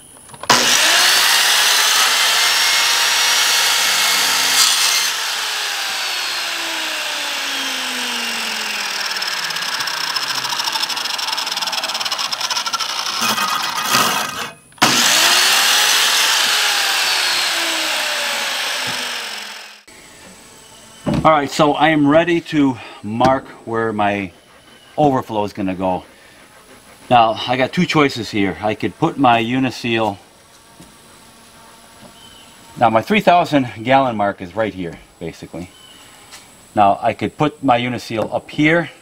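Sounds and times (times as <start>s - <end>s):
miter saw cutting plastic pipe: 0.5s - 20.0s.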